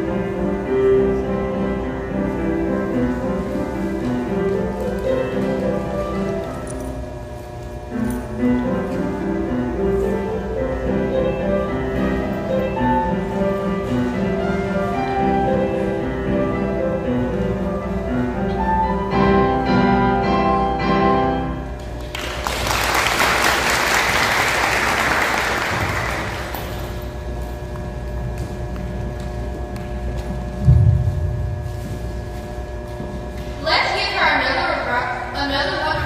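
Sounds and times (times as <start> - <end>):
digital piano solo piece: 0.0 - 7.1, 7.9 - 21.8
audience applause: 22.0 - 26.7.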